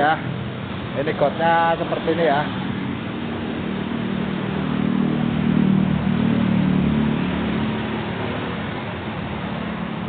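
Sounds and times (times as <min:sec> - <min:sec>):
vehicle passing by: 0:00.0 - 0:10.0.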